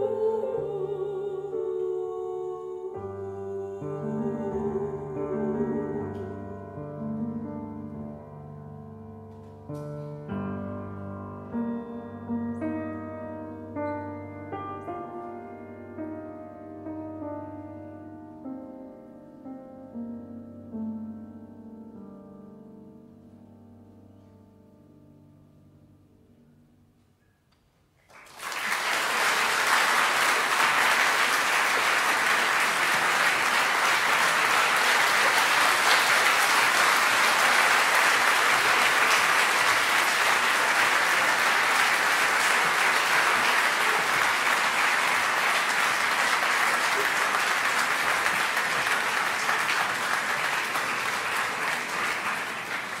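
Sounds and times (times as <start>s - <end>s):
audience clapping: 28.0s - 53.0s.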